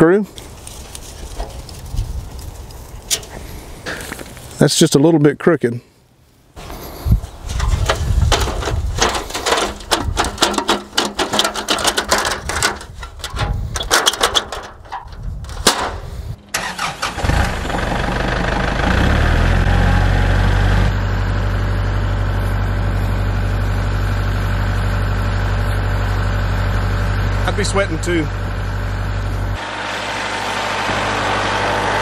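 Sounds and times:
tractor diesel engine starting: 0:07.6 - 0:32.0
clicks and knocks: 0:07.8 - 0:16.0.

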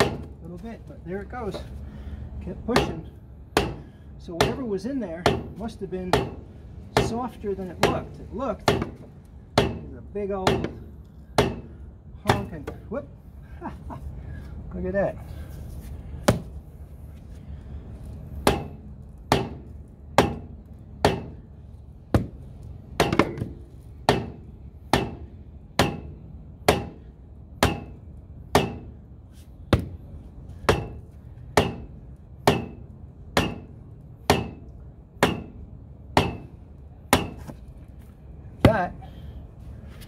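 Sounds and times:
rubber mallet striking plastic pipe: 0:25.8 - 0:26.1, 0:28.6 - 0:28.9, 0:34.3 - 0:34.6, 0:35.2 - 0:35.6, 0:36.2 - 0:36.5.

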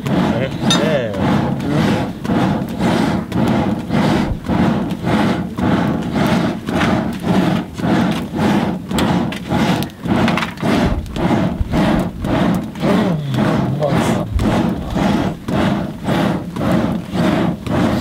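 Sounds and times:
blacksmith hammer strokes: 0:00.0 - 0:01.7.

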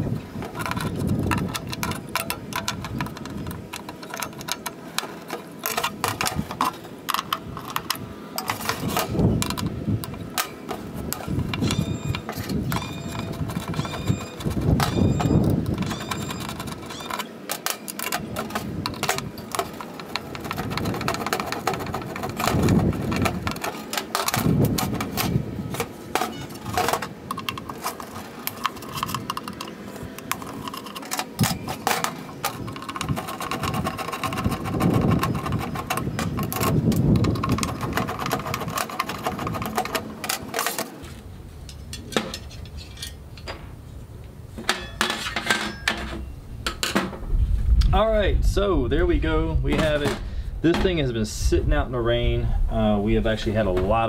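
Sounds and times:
tools clinking on metal grill: 0:00.6 - 0:40.9, 0:41.6 - 0:43.7, 0:44.6 - 0:47.1
short metallic squeaks: 0:11.6 - 0:18.0, 0:26.2 - 0:26.8, 0:44.8 - 0:46.4.

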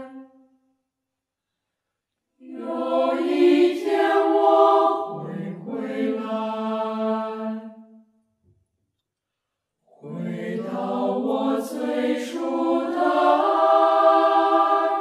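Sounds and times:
chant-like singing: 0:02.4 - 0:07.7, 0:10.0 - 0:15.0.

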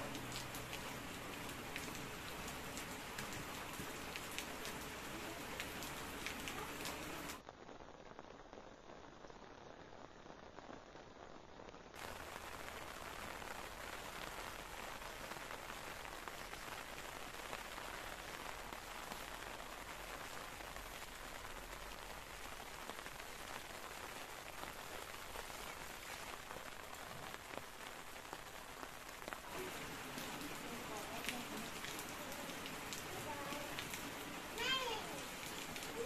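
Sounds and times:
steady rain falling: 0:00.0 - 0:36.0.

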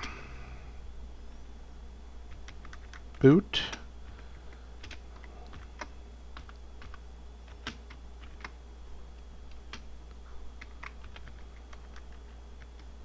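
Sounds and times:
steady low hum: 0:00.0 - 0:13.0
computer keyboard keystrokes: 0:02.3 - 0:08.6, 0:09.5 - 0:09.9, 0:10.6 - 0:12.9.

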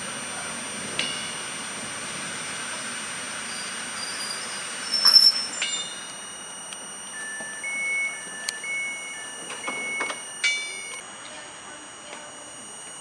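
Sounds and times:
electrical whine: 0:00.0 - 0:13.0
train brake squeal: 0:03.4 - 0:06.2
two-tone door warning beeps: 0:03.5 - 0:11.0.

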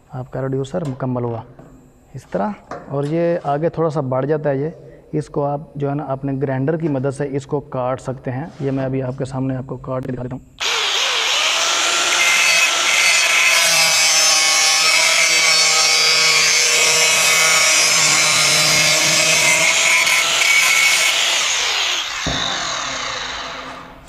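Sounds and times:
angle grinder cutting steel: 0:10.6 - 0:23.9.

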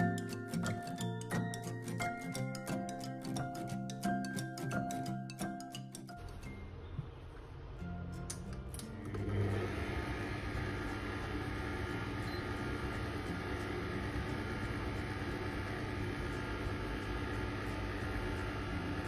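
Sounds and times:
stand mixer motor running: 0:09.0 - 0:19.0
kitchen timer beep: 0:10.9 - 0:16.7.

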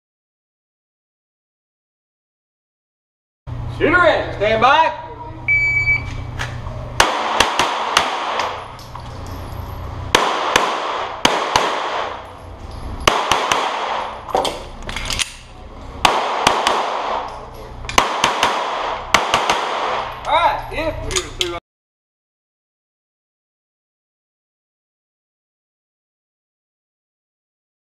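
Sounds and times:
pistol shots echoing indoors: 0:07.0 - 0:08.8, 0:10.1 - 0:12.4, 0:13.0 - 0:20.2.

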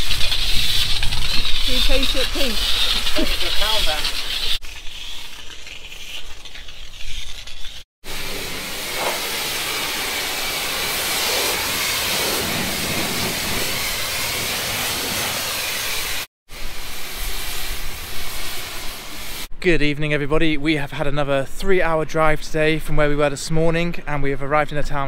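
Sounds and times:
pressure washer spraying water: 0:00.0 - 0:04.6, 0:08.0 - 0:19.5.

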